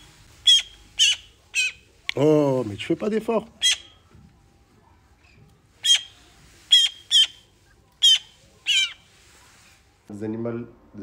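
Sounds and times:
young magpie begging squawks: 0.4 - 1.9, 3.6 - 4.0, 5.8 - 7.4, 8.0 - 9.1.

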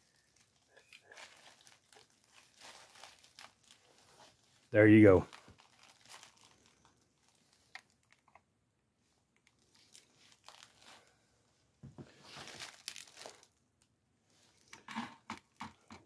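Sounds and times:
packing material rustling: 0.0 - 8.4, 9.4 - 11.2, 12.0 - 13.6.

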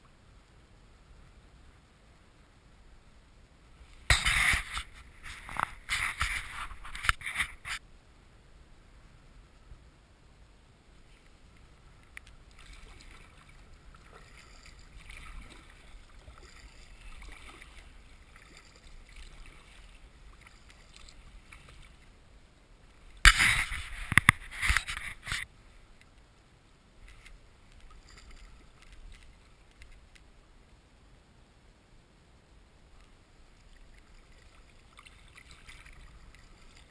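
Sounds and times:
paddle strokes splashing in water: 12.4 - 22.2, 33.7 - 36.9.

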